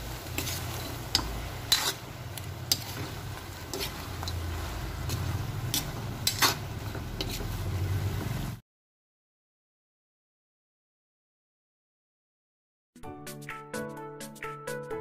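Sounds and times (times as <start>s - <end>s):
spatula scraping a pan: 0.0s - 8.4s.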